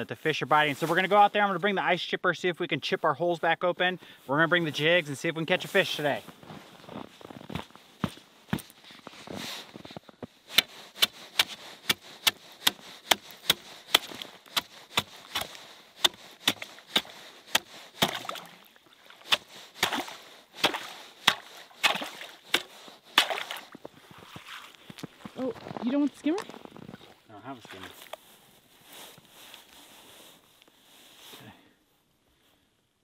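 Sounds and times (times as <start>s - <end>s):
ice chipper chopping ice: 10.6s - 18.3s.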